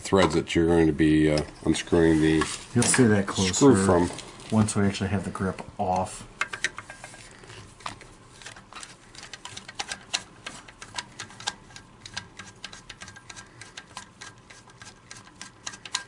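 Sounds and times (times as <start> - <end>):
screwdriver turning screw clicks: 15.2 - 16.0.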